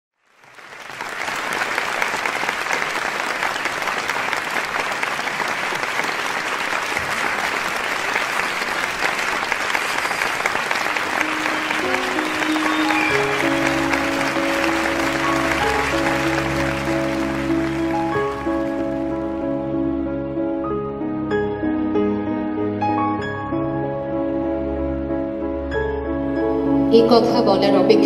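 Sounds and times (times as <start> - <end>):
audience applauding: 0.2 - 19.5
sustained music notes: 10.2 - 28.0.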